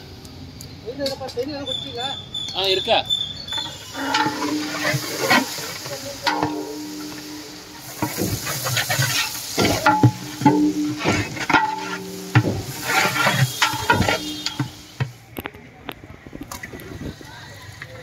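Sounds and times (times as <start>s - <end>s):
onions sizzling in oil: 3.4s - 15.2s
metal ladle scraping a pot: 3.5s - 15.1s
metal pot ringing: 3.5s - 15.1s.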